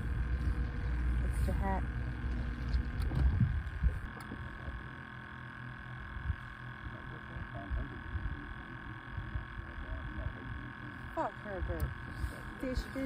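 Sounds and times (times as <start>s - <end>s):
faint high whine: 0.0s - 13.0s
wind buffeting microphone: 2.1s - 4.8s.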